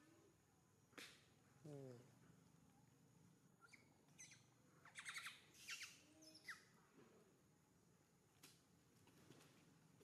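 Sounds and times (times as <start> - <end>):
high-pitched chirping calls: 3.6 - 6.8.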